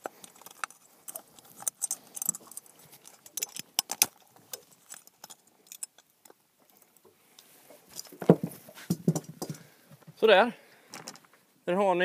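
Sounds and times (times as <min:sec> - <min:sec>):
pliers clinking against metal hooks: 0:00.0 - 0:06.1.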